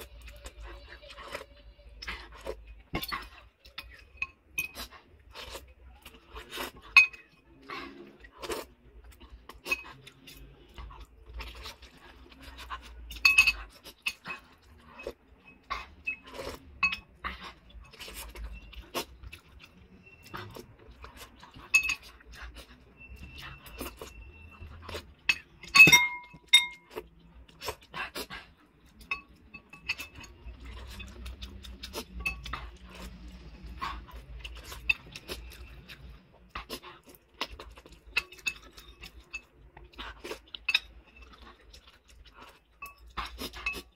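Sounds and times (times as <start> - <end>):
mouth sounds of eating: 0.0 - 25.6, 26.8 - 43.9
cutlery clinking on ceramic bowl: 2.0 - 5.5, 6.7 - 7.4, 9.5 - 18.4, 19.3 - 27.1, 28.9 - 33.1, 34.4 - 35.7, 37.3 - 43.9.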